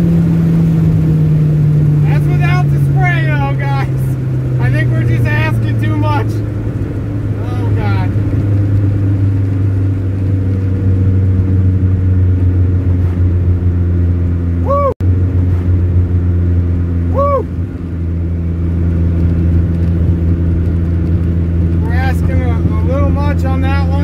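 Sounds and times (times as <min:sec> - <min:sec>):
car engine cruising: 0:00.0 - 0:24.0.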